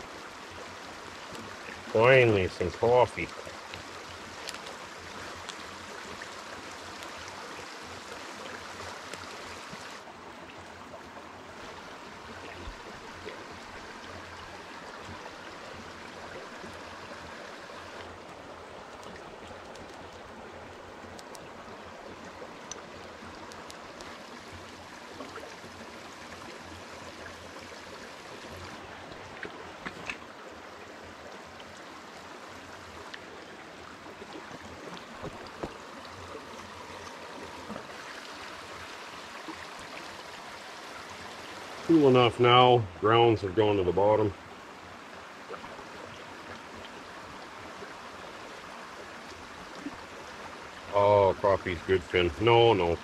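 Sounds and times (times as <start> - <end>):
creek running over rocks: 0.0 - 53.0
faint ticks: 3.3 - 4.8, 21.0 - 21.5, 22.6 - 25.5.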